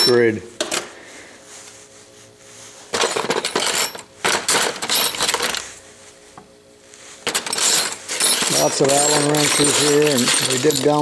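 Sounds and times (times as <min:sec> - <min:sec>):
steel tools clinking in cardboard box: 0:02.9 - 0:05.6, 0:07.2 - 0:11.0.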